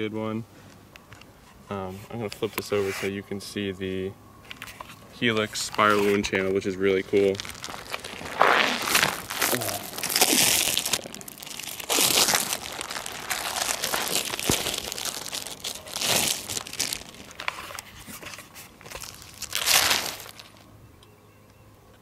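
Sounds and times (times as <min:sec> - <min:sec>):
plastic wrapping crinkling: 0:04.5 - 0:20.7.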